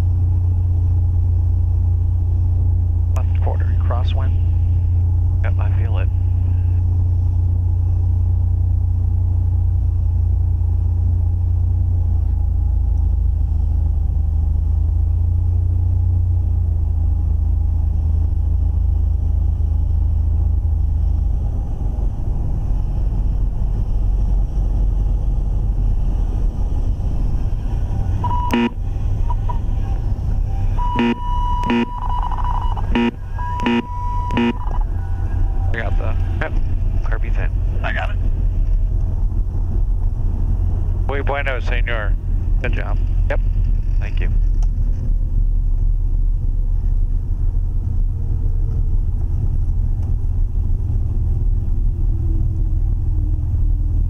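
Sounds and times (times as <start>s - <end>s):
aircraft engine and propeller droning: 0.0s - 54.0s
stall warning horn: 27.6s - 37.3s.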